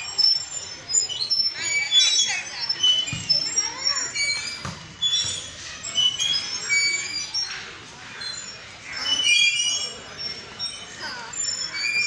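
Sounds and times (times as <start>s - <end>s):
metal swing hangers squeaking: 0.0s - 12.0s
children's voices: 1.5s - 4.8s.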